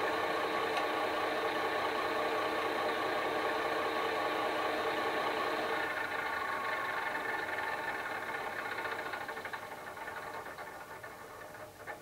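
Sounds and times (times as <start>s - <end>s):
diesel engine idling from small speaker: 0.0s - 11.2s.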